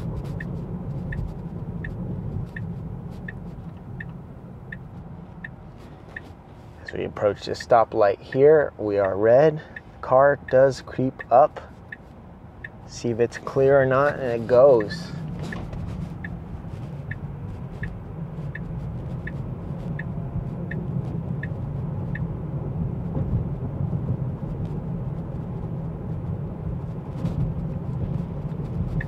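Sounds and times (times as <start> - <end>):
road and tyre noise in car cabin: 0.0 - 29.0
turn signal ticking: 0.0 - 29.0.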